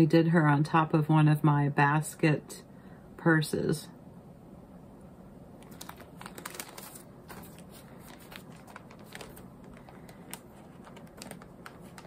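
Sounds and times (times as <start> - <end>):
plastic sheet protectors crinkling: 5.6 - 12.0.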